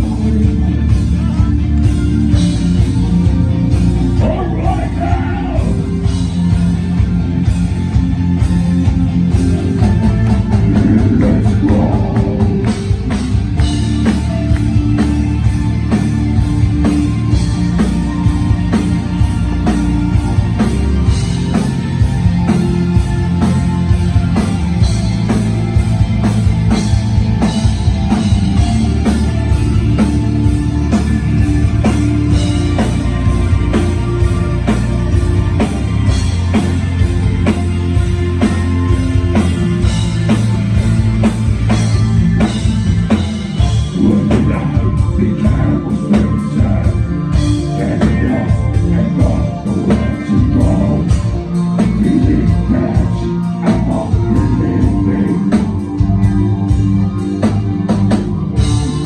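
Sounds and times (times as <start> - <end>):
bass guitar: 0.0 - 59.0
distorted electric guitars: 0.0 - 59.0
drum kit steady beat: 0.0 - 59.0.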